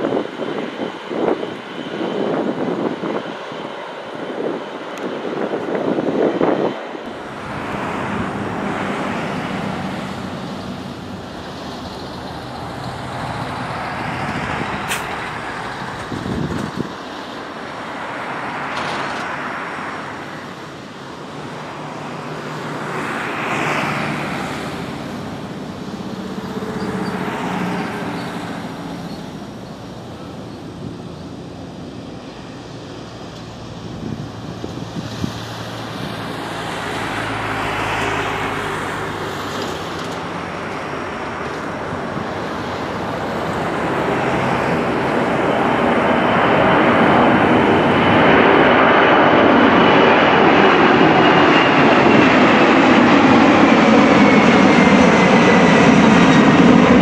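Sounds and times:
distant jet engines roaring: 0.0s - 57.0s.

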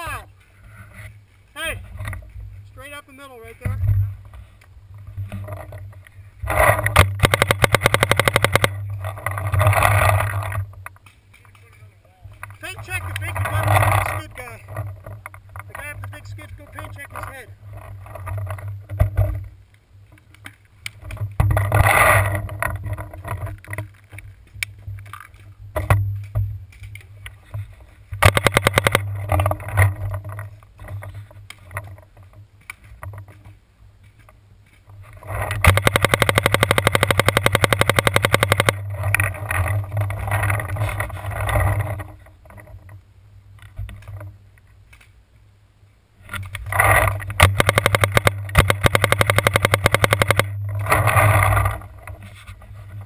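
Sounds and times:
paintball markers firing: 7.0s - 8.8s, 28.2s - 29.1s, 35.6s - 38.8s, 47.0s - 50.6s.

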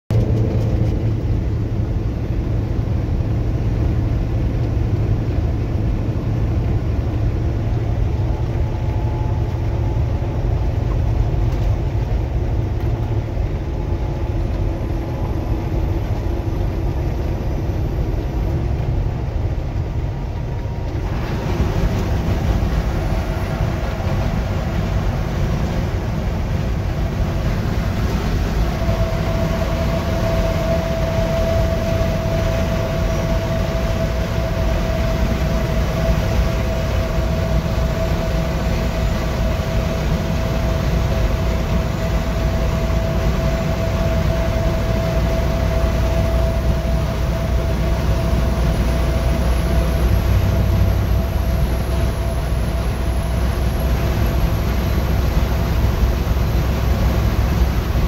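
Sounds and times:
road and engine noise in vehicle: 0.0s - 58.0s.

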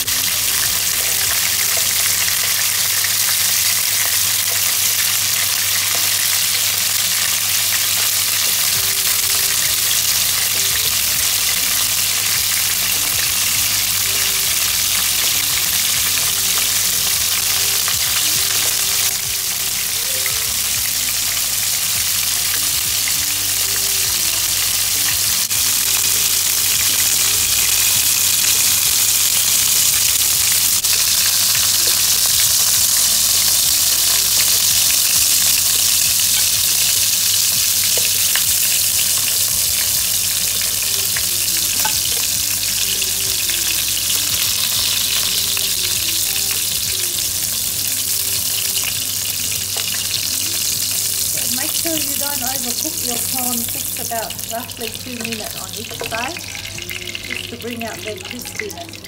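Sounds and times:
prawns sizzling in hot oil: 0.0s - 59.0s.

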